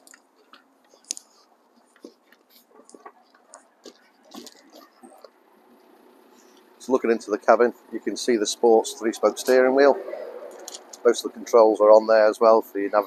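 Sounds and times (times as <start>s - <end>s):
footsteps on gravel: 0.0s - 6.0s.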